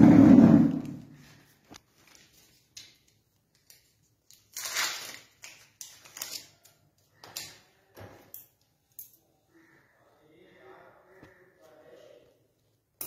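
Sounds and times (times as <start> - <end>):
plastic wrapper crinkling and tearing: 1.2 - 7.7.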